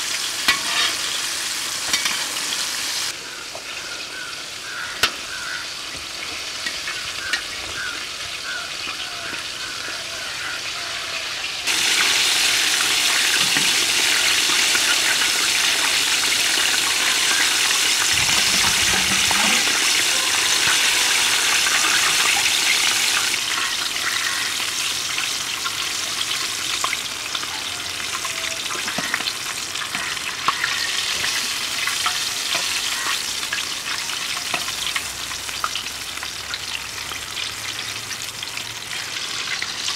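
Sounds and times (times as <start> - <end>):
food deep-frying in oil: 0.0 - 39.9.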